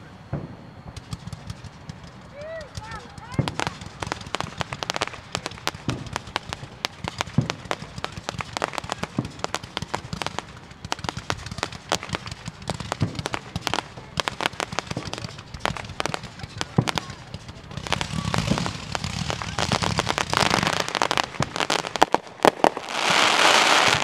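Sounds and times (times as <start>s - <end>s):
fireworks cracking and popping: 0.0s - 24.0s.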